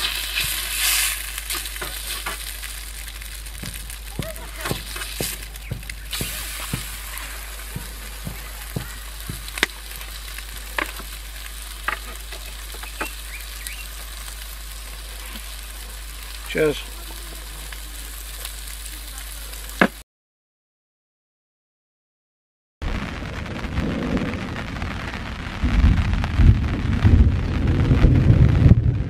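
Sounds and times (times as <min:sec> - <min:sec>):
patty sizzling in a frying pan: 0:00.0 - 0:20.0.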